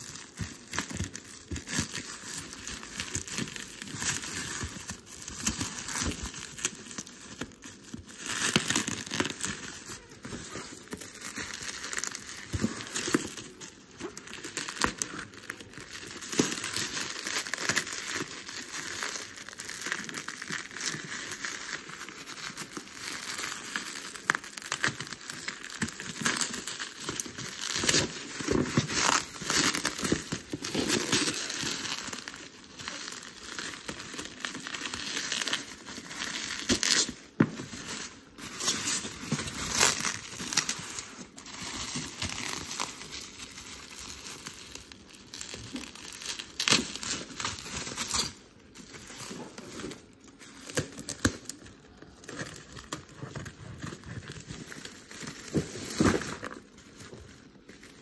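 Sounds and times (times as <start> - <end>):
bubble wrap crinkling: 0.0 - 58.0.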